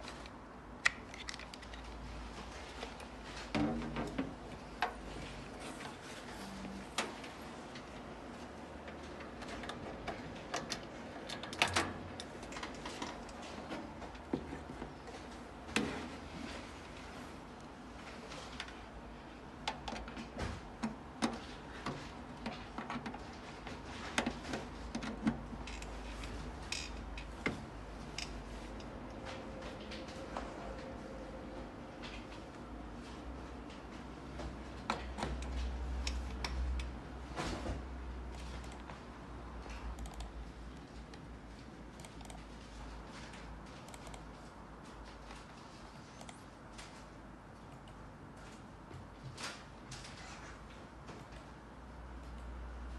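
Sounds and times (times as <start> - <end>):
computer mouse clicks: 39.7 - 40.9, 42.0 - 42.4, 43.8 - 44.3, 46.1 - 46.4.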